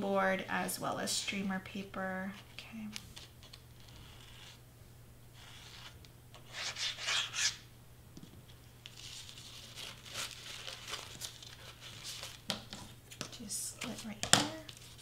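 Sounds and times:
paper rustling against foam board: 8.8 - 15.0.

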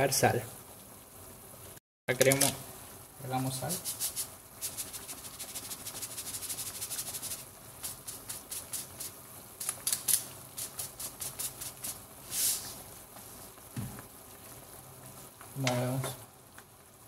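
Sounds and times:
salt shaker rattling: 3.8 - 12.1
brief hiss: 12.2 - 12.8.

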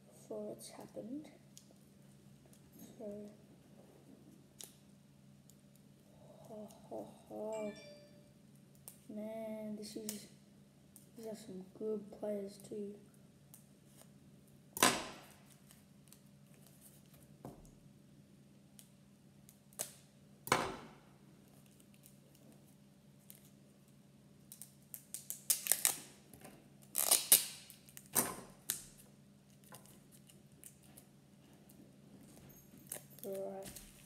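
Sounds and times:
packaging rustling and crinkling: 29.5 - 34.0.

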